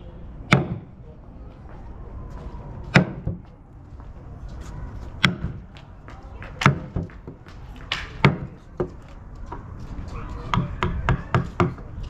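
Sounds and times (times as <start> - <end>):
mallet striking chisel into wood: 0.5 - 0.9, 5.2 - 5.6.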